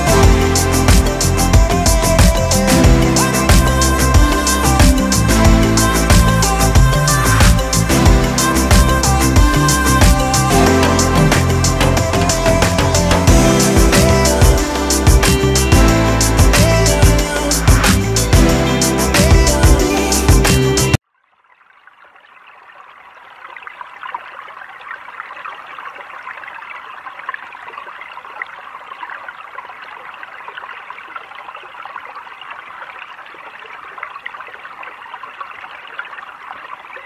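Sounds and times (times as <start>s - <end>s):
small stream babbling: 21.0s - 37.0s.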